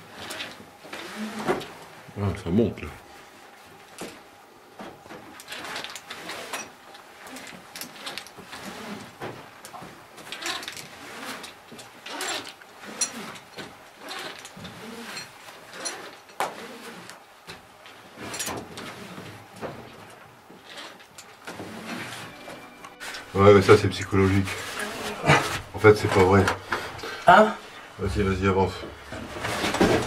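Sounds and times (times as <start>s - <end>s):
gear scraping against rope and rock: 5.3s - 17.2s, 17.9s - 27.2s.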